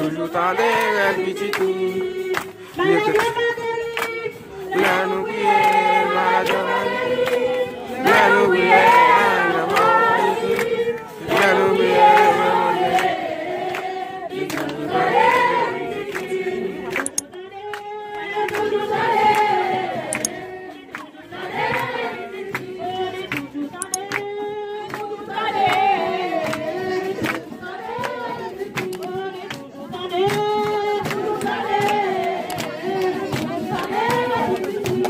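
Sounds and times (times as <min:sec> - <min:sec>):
congregation singing: 0:00.0 - 0:35.0.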